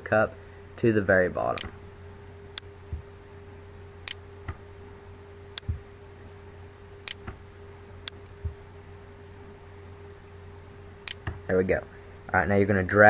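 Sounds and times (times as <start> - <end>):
steady low hum: 0.0 - 13.0
computer mouse clicking: 7.1 - 7.4.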